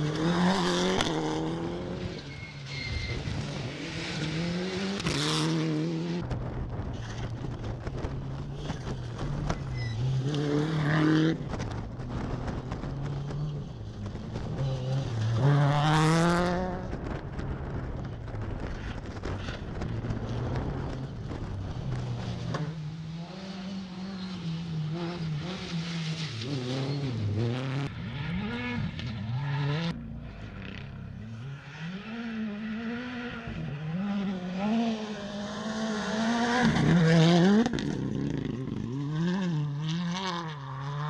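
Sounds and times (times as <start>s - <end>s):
racing car engines accelerating: 19.8s - 41.0s.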